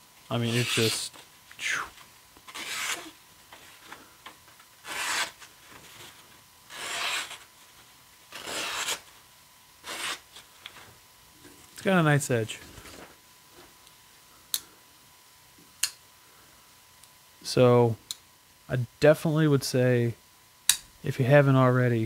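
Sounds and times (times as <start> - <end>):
knife slicing through paper: 2.5 - 3.2, 4.8 - 5.4, 6.7 - 7.4, 8.3 - 9.0.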